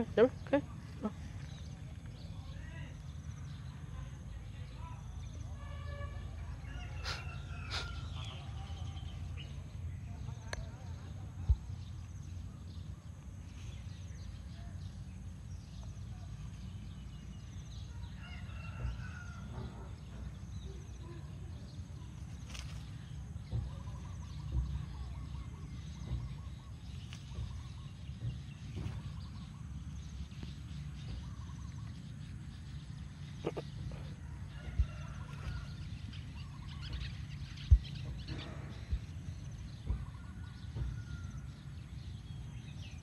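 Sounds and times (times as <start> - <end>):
steady low rumble: 0.0 - 43.0
faint bird calls: 6.0 - 9.5, 33.2 - 39.0.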